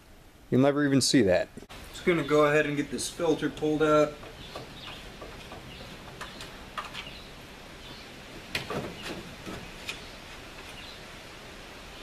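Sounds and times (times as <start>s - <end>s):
steady low hiss: 0.0s - 12.0s
plastic duct clicks and knocks: 8.4s - 10.0s.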